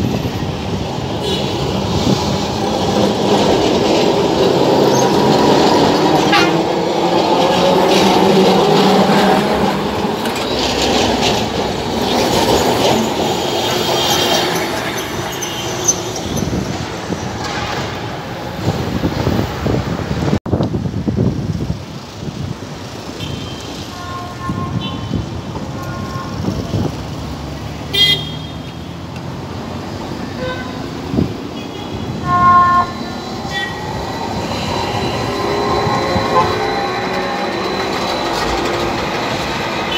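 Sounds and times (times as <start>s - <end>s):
tram wheels rumbling on rails: 0.0s - 39.9s
high-pitched wheel squeals: 31.8s - 39.9s.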